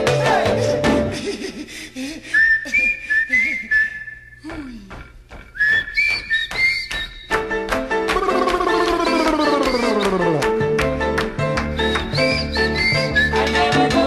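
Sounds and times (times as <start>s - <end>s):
whistled tune: 2.3s - 4.4s, 5.5s - 7.4s, 8.2s - 10.5s, 11.6s - 14.0s.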